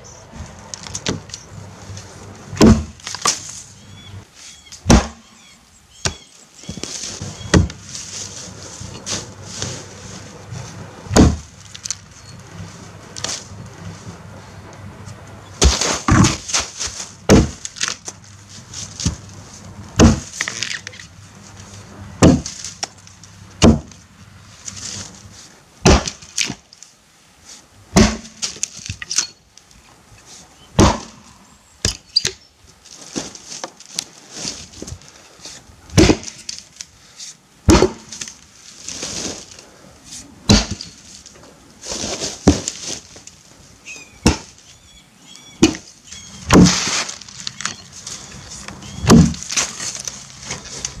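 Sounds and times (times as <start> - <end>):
axe chopping into log: 2.6 - 3.4, 4.8 - 5.2, 7.5 - 7.8, 11.1 - 11.5, 15.6 - 16.6, 17.3 - 17.6, 20.0 - 20.6, 22.2 - 22.6, 23.6 - 23.9, 25.8 - 26.6, 28.0 - 28.6, 30.8 - 31.2, 36.0 - 36.4, 37.7 - 38.3, 40.5 - 40.9, 44.2 - 44.6, 45.6 - 45.9, 46.5 - 47.0, 49.0 - 49.7.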